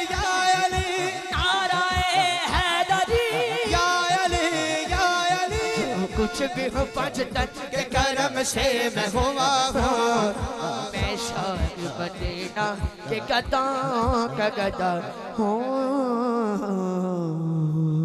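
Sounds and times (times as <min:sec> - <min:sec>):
steady low beat: 0:00.0 - 0:14.3
man singing melodic lines: 0:00.0 - 0:18.0.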